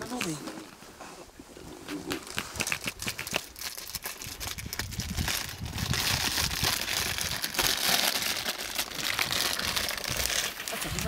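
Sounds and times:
wind buffeting microphone: 0:04.2 - 0:07.7.

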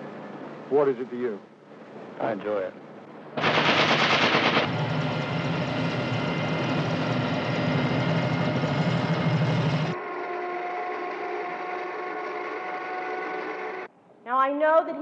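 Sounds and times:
mechanical drone with low hum: 0:02.9 - 0:13.9
automatic gunfire: 0:03.4 - 0:04.8.

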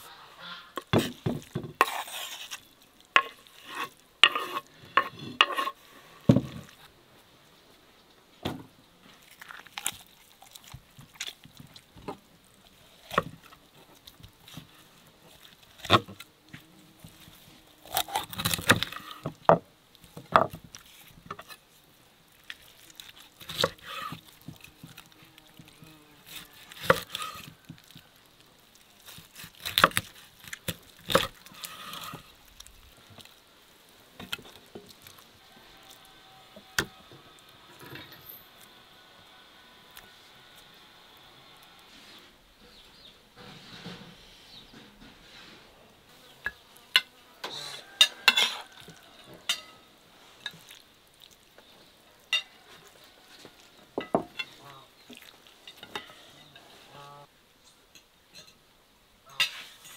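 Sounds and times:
crackling of crisp skin being cut: 0:09.2 - 0:19.4, 0:20.0 - 0:33.5.

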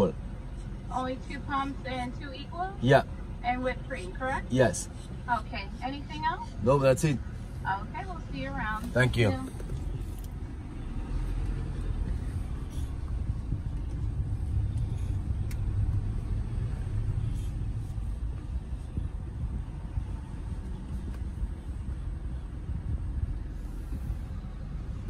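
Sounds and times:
car engine rumble from inside cabin: 0:00.0 - 0:25.0.

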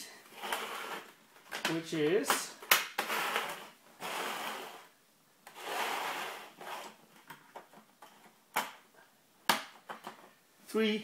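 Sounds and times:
plastic panels scraping on wood floor: 0:00.4 - 0:01.7, 0:03.0 - 0:04.9, 0:05.5 - 0:07.7.

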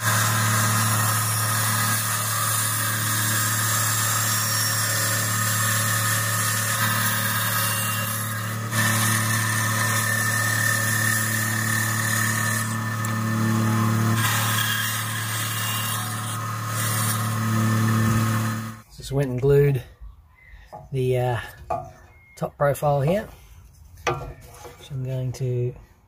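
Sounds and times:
bandsaw motor hum: 0:00.0 - 0:18.8
saw blade cutting wood: 0:00.0 - 0:18.8.

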